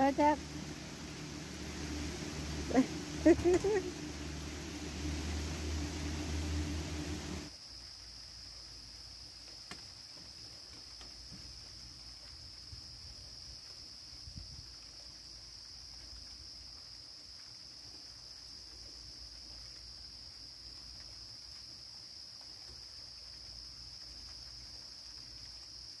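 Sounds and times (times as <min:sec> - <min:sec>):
crickets trilling: 0:00.0 - 0:07.5
low rumble: 0:00.0 - 0:07.5.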